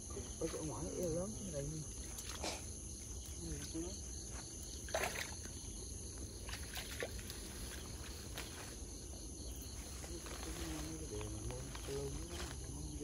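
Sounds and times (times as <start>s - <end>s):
insect chirring: 0.0s - 13.0s
water sloshing and splashing: 0.4s - 8.8s.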